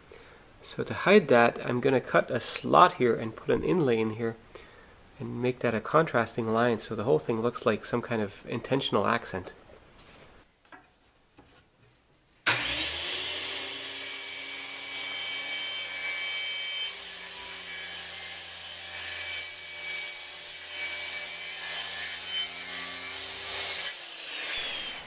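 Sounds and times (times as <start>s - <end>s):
circular saw cutting wood: 12.5s - 25.0s.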